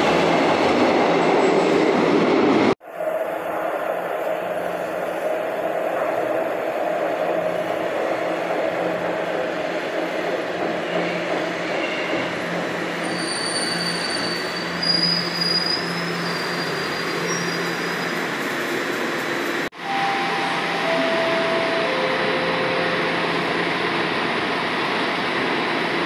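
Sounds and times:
subway train wheels rumbling: 0.0s - 26.0s
high brake squeal: 13.0s - 18.3s.

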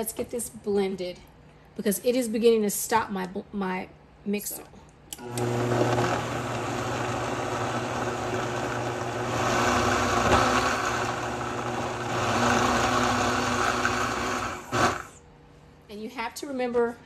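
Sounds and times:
blender motor straining: 5.2s - 15.2s.

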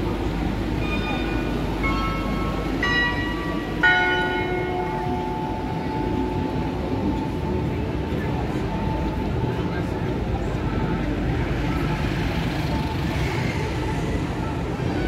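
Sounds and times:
street traffic hum: 0.0s - 15.0s
bell-like metallic chimes: 0.7s - 7.9s.

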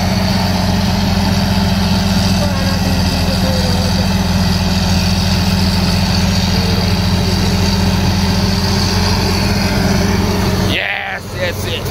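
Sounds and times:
bulldozer diesel engine running: 0.0s - 11.9s.

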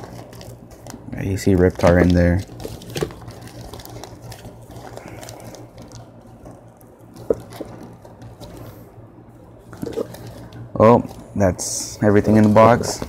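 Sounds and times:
plastic crinkling and rustling: 0.0s - 8.9s, 9.6s - 13.0s
steady low hum: 0.0s - 13.0s.

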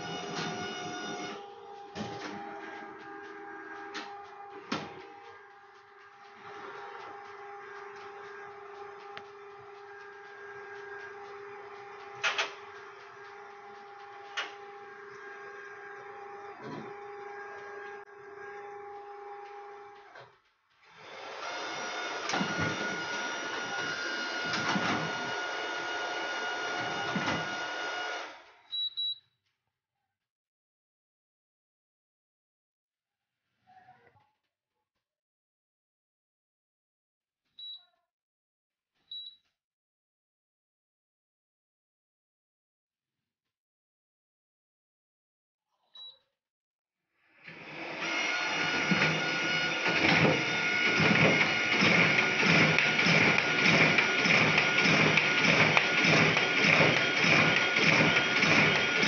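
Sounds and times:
machine whirring with tones: 0.0s - 28.8s, 47.5s - 59.0s
machine clacks: 2.0s - 14.8s, 48.8s - 59.0s.

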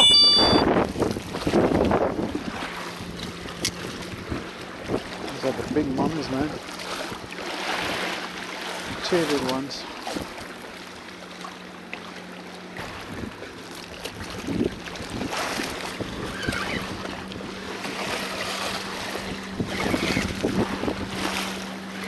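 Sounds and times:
wind buffeting microphone: 0.6s - 6.3s, 12.8s - 13.5s, 14.1s - 21.8s.

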